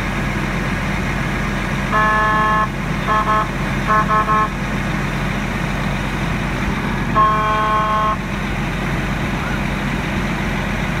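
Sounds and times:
fire engine engine droning: 0.0s - 11.0s
vehicle horn: 1.9s - 4.6s, 7.1s - 8.3s.

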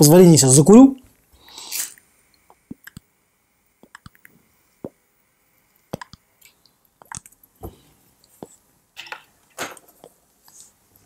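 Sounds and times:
pipe puffing lip pops: 1.5s - 3.1s, 3.8s - 5.0s, 5.9s - 7.3s.

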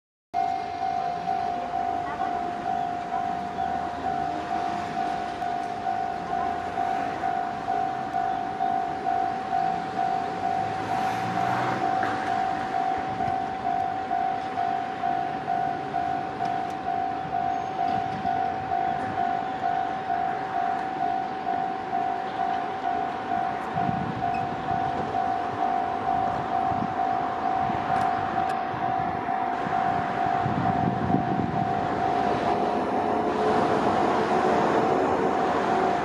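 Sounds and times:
level crossing warning bell: 0.4s - 36.0s
train rolling: 0.4s - 36.0s.

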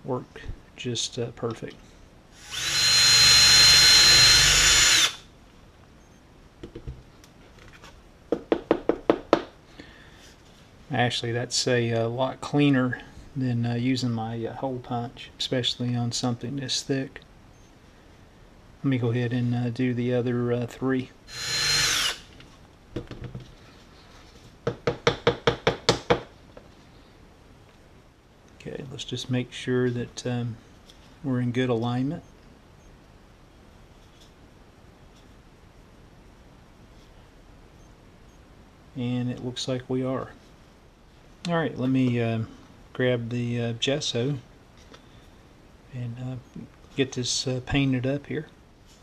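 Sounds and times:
drill whining through cardboard: 2.4s - 5.2s, 21.3s - 22.3s.

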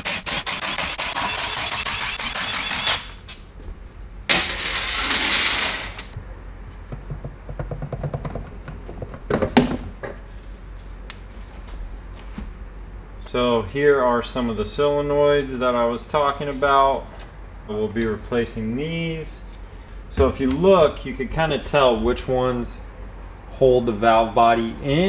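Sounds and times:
cordless power tool running: 0.0s - 3.2s.

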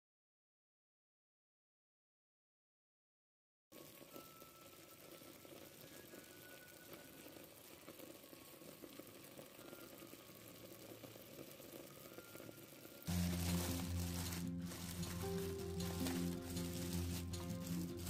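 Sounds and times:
faint pot simmering: 3.8s - 18.0s.

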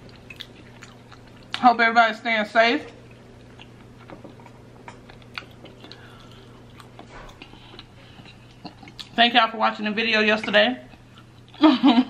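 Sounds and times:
person chewing food: 0.0s - 1.6s, 2.9s - 9.2s, 10.9s - 11.6s.

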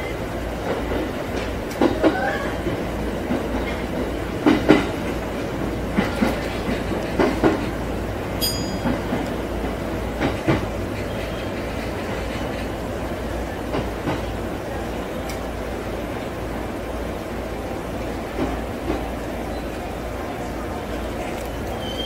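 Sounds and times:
train running rumble: 0.0s - 22.0s
train wheels clacking over rail joints: 0.5s - 12.9s.

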